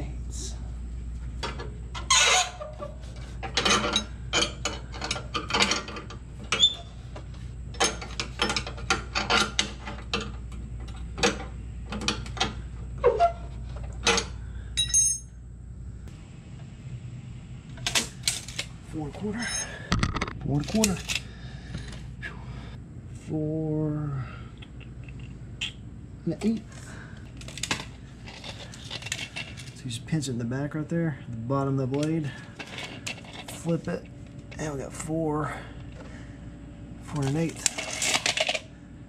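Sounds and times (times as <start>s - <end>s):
ringing metal chink: 14.8s - 15.4s.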